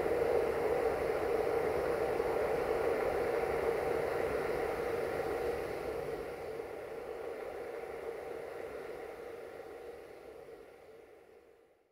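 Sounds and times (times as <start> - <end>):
steady hum with hiss: 0.0 - 11.9.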